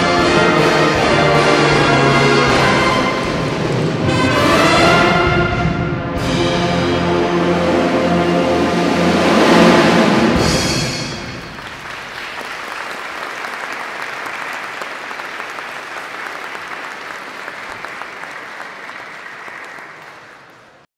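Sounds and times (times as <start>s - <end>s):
audience applause: 11.2s - 20.9s.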